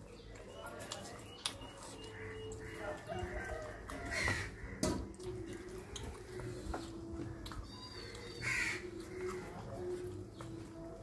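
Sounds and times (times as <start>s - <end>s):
person eating with hands: 0.0s - 11.0s
crows cawing: 2.2s - 5.1s, 8.2s - 9.5s.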